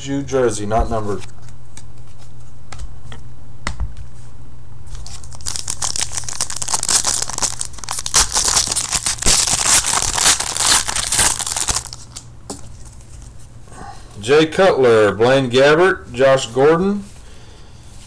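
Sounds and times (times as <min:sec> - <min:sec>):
wrapper tearing and crinkling: 0:04.9 - 0:12.3.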